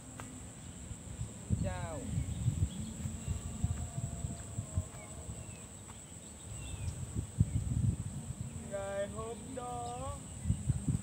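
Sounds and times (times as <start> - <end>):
crickets droning: 0.0 - 11.0
bird chirps: 5.0 - 7.7.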